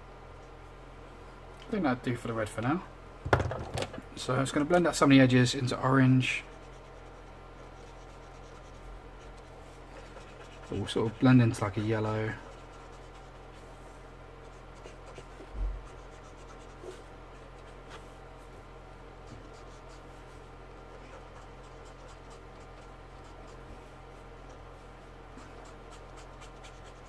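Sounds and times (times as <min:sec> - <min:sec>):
electrical hum: 0:00.0 - 0:27.0
marker scratching on paper: 0:06.5 - 0:13.6, 0:14.4 - 0:18.1, 0:19.3 - 0:23.7, 0:25.4 - 0:27.0.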